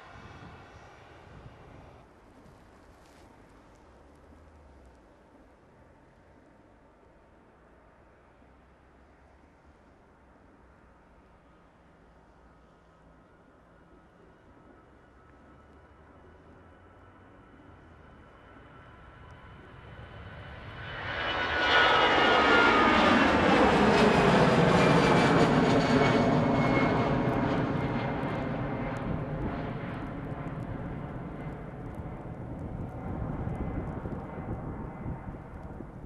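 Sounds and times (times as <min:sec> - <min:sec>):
jet engines roaring at takeoff: 0:00.0 - 0:02.0, 0:14.5 - 0:36.0.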